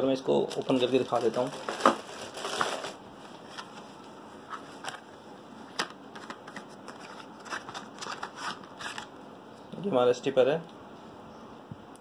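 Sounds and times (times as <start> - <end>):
packet rustling: 0.4 - 3.0, 6.2 - 9.1.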